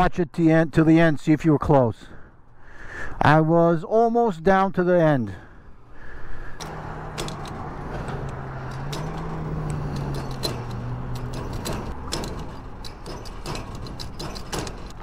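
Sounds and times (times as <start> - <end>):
fuel pump hum: 5.5 - 15.0
nozzle handle clicks: 6.6 - 15.0.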